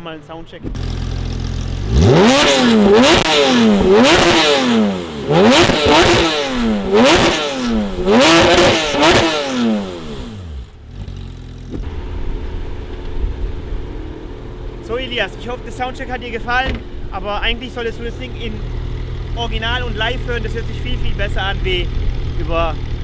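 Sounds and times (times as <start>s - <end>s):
car engine revving: 0.7s - 23.0s.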